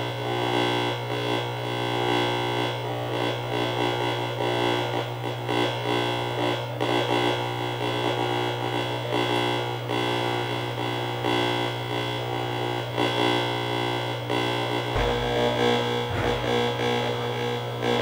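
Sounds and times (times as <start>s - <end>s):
distorted buzzing tones: 6.2s - 18.0s
steady low hum: 13.6s - 18.0s.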